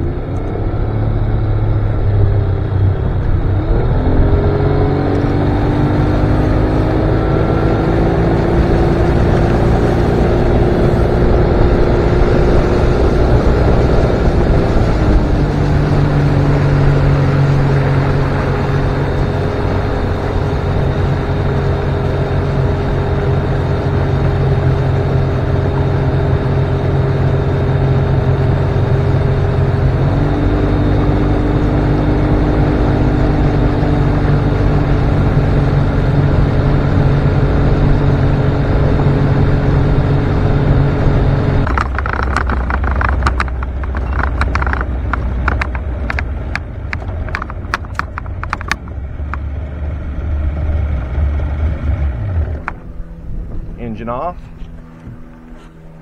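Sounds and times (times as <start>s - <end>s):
outboard motor running: 0.0s - 56.0s
sharp clicks and knocks: 41.6s - 49.5s.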